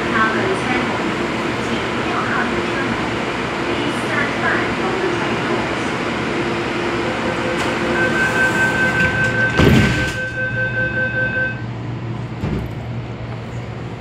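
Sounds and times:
train door warning tone: 6.3 - 11.7
sliding doors thudding shut: 8.5 - 10.4.

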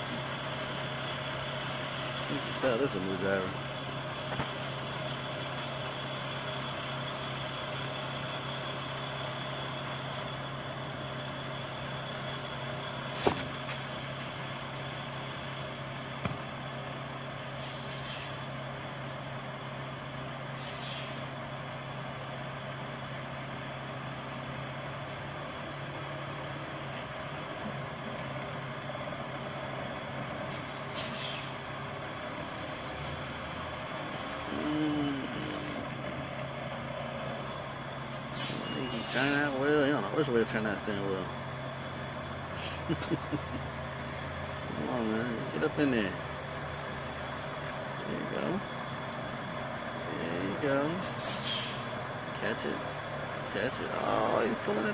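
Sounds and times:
diesel engine idling: 0.0 - 54.9
air brake hiss: 17.4 - 18.5, 20.5 - 21.3, 30.5 - 31.7, 38.1 - 39.2, 51.0 - 52.0.

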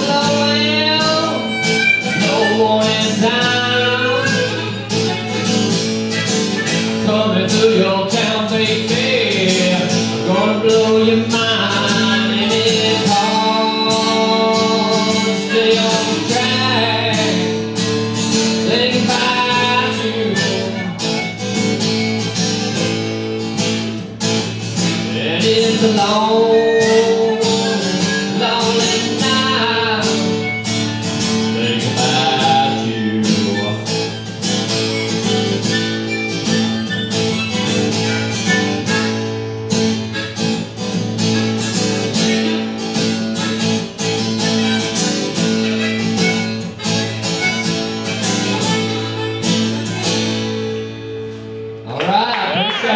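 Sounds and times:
bending lead melody: 0.0 - 8.7, 26.0 - 51.4
strummed acoustic guitar: 0.0 - 52.9.

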